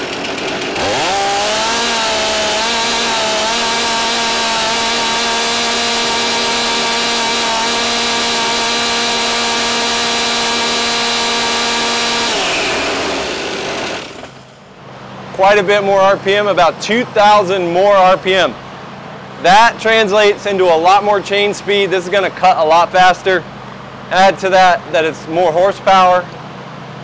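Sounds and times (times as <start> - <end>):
chainsaw at full throttle: 0.0 - 14.6.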